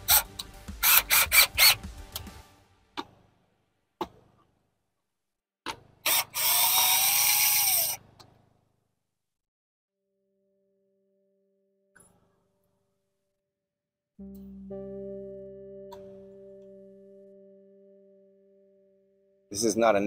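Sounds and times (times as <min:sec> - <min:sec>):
cordless drill driving screw: 0:00.0 - 0:01.8, 0:06.0 - 0:08.3
sharp clicks and knocks: 0:05.6 - 0:06.1, 0:08.0 - 0:08.6.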